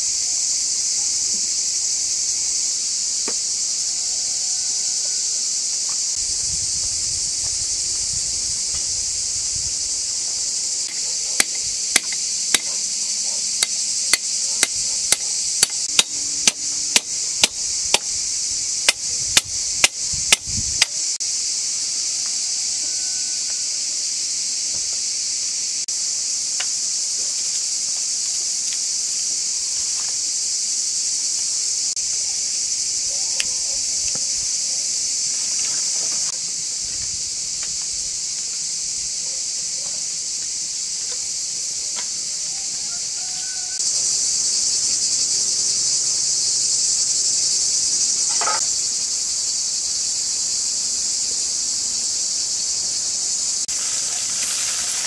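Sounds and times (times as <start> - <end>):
insect chorus: 0.0 - 55.0
hammer blows on metal rods: 10.9 - 12.9.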